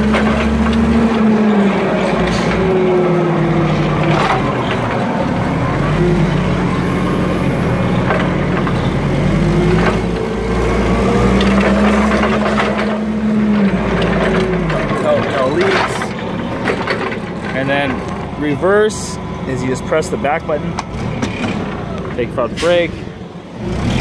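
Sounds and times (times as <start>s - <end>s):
sharp clicks and knocks: 0.0s - 1.3s, 7.8s - 22.8s
forklift engine running: 0.0s - 24.0s.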